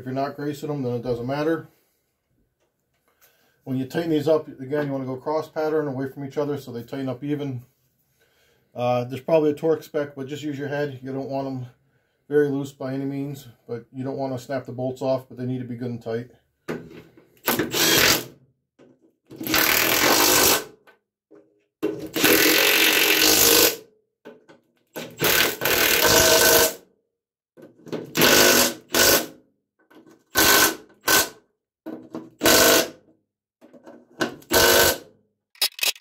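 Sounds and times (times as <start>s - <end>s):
cordless impact wrench hammering: 30.3s - 31.2s, 32.4s - 32.9s, 34.5s - 35.0s.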